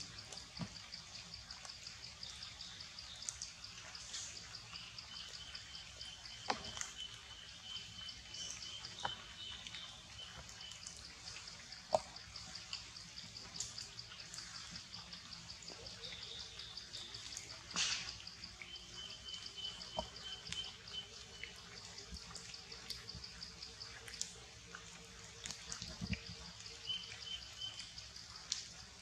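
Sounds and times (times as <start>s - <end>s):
cricket chirping: 0.0s - 29.0s.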